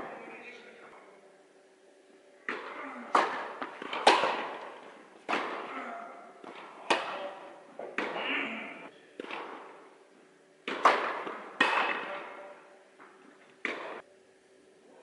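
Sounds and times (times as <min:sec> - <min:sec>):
tennis ball pops echoing indoors: 0:02.4 - 0:05.7, 0:06.4 - 0:08.2, 0:10.6 - 0:14.0.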